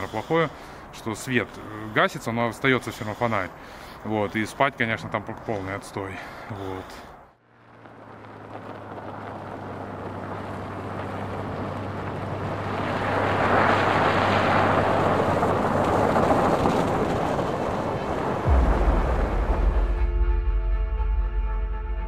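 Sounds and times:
deep low boom: 0:18.4 - 0:22.0.

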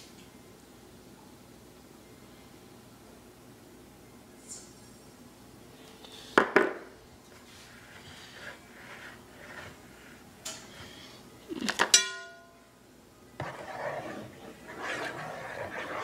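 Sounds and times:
bowl clinking: 0:11.8 - 0:12.6.

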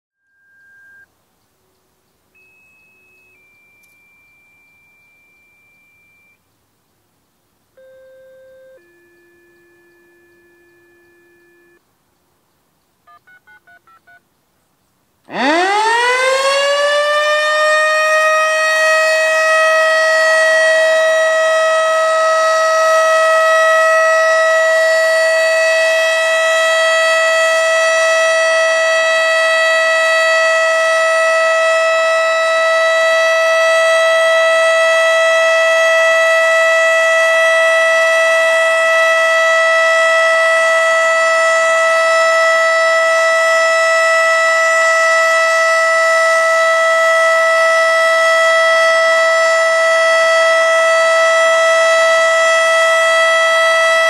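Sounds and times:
mechanical siren wailing: 0:08.4 - 0:11.8, 0:15.3 - 0:54.0.

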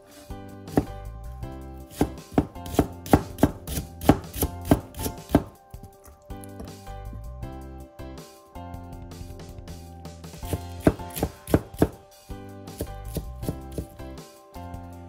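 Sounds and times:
knife slicing on wooden board: 0:01.9 - 0:05.5, 0:10.5 - 0:12.0.

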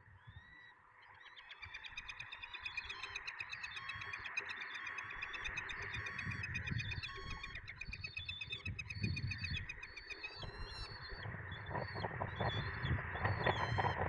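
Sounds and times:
songbirds singing: 0:00.0 - 0:14.0.

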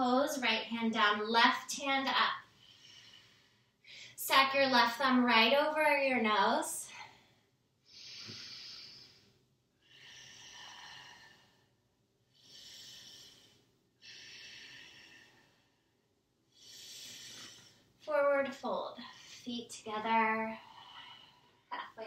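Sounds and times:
woman breathing deeply: 0:02.5 - 0:04.2, 0:07.0 - 0:18.0, 0:19.0 - 0:19.5, 0:20.5 - 0:21.7.

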